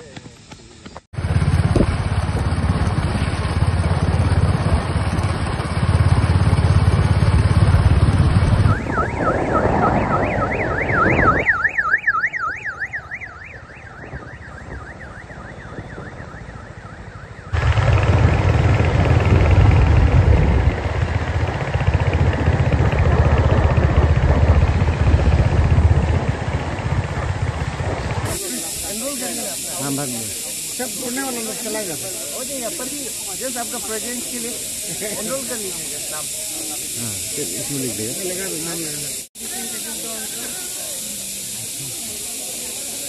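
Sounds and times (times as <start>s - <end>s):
wind and road rumble: 0.0s - 28.4s
warbling electronic siren: 1.4s - 17.9s, 28.2s - 43.0s.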